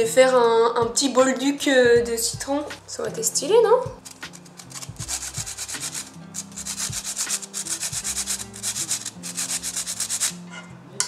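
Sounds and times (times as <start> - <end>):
lime scraping on a grater: 4.0 - 10.5.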